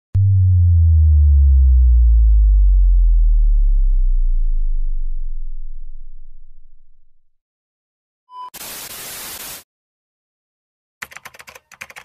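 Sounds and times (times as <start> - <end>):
deep synthesized bass tone: 0.1 - 7.4.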